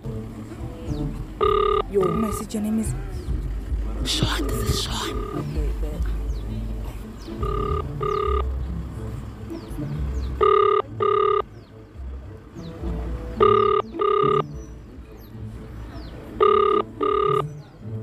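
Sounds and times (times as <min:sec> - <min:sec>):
phone ringback tone beeps: 0:01.4 - 0:02.4, 0:04.4 - 0:05.5, 0:07.4 - 0:08.5, 0:10.4 - 0:11.5, 0:13.4 - 0:14.4, 0:16.4 - 0:17.5.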